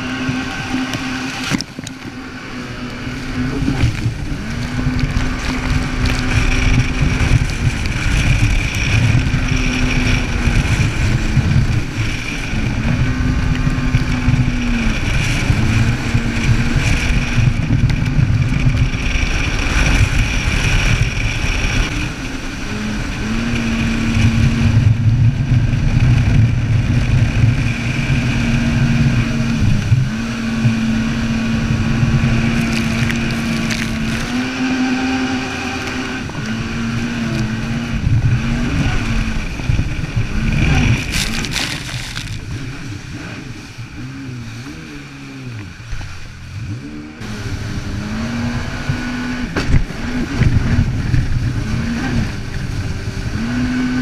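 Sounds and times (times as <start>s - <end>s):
jet ski engine running: 0.0s - 54.0s
water rushing past: 27.8s - 54.0s.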